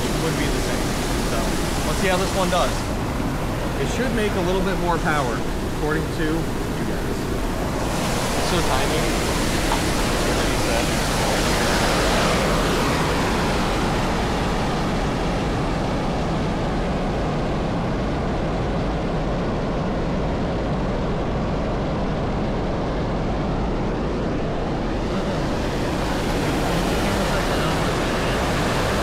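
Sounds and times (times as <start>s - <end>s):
waterfall rushing: 0.0s - 15.8s, 24.9s - 29.0s.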